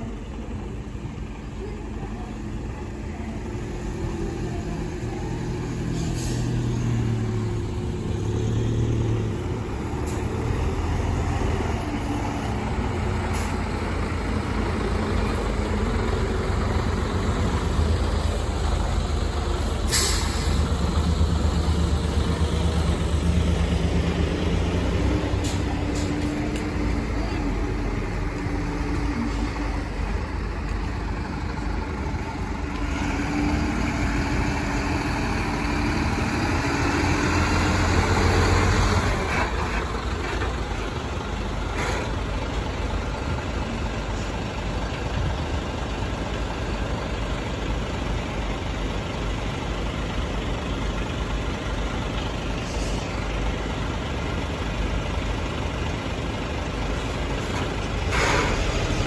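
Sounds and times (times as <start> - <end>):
diesel truck engines rumbling: 0.0 - 59.0
air brakes hissing: 5.8 - 6.7, 19.8 - 20.8, 52.6 - 53.2, 58.0 - 59.0.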